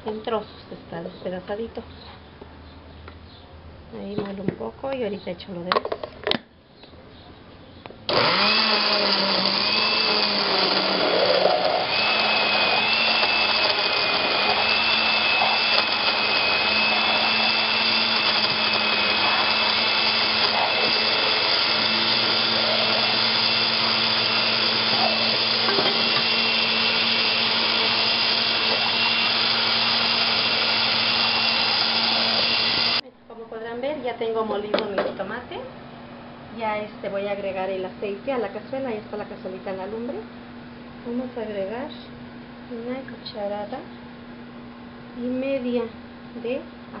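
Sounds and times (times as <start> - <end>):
electric blender running: 8.1 - 33.0.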